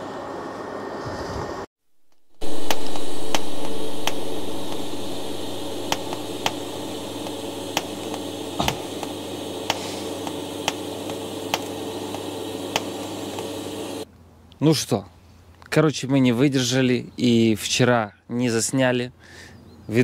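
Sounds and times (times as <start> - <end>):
sharp crackles and pops: 2.1 - 13.5
arc welding hiss and hum: 2.1 - 14.1.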